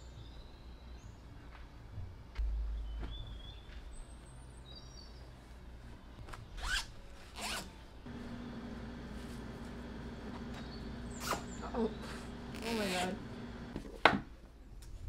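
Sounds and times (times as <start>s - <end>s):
zipper zipping: 6.6s - 7.8s, 11.1s - 13.2s.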